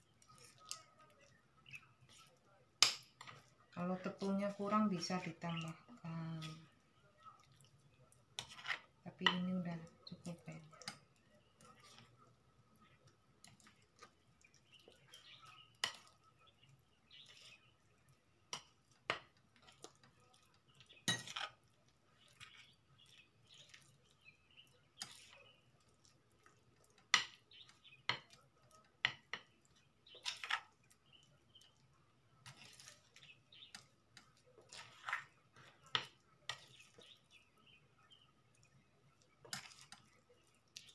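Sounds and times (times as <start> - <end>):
shrimp mixed in batter by hand: 0.0 - 40.9
clinks and knocks against bowl: 21.0 - 21.5.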